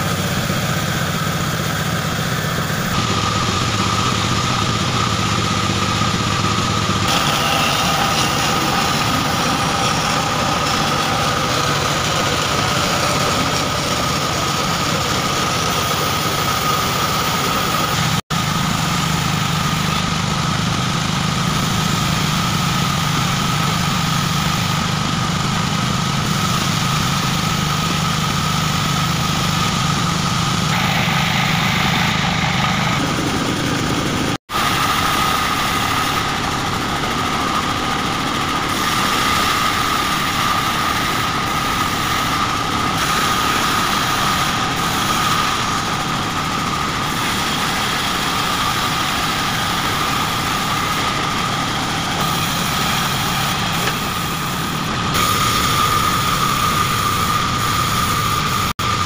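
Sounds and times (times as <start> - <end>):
band saw cutting wood: 0.0 - 59.0.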